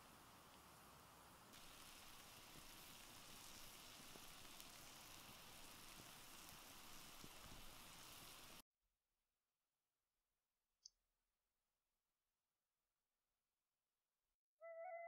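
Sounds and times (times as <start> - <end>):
light crackles: 0.0 - 8.6
meat sizzling on hot stone: 0.0 - 8.6.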